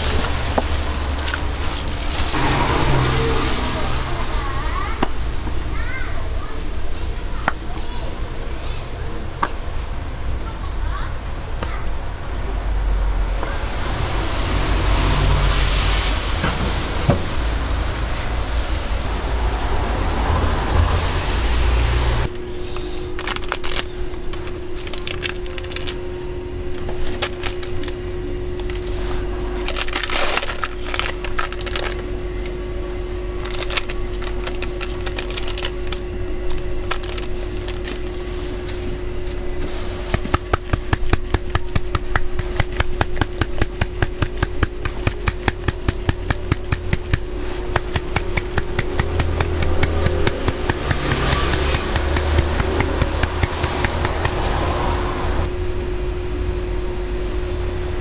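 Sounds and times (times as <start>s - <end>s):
steady hum: 0.0s - 58.0s
rapid even tapping: 40.1s - 54.6s.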